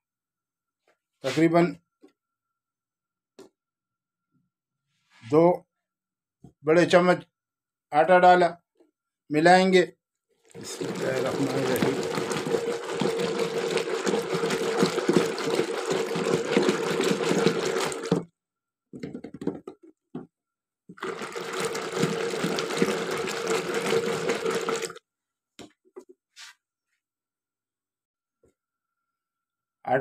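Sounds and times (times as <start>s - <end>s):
spoon whisking in metal jug: 10.6s - 18.2s, 21.0s - 25.0s.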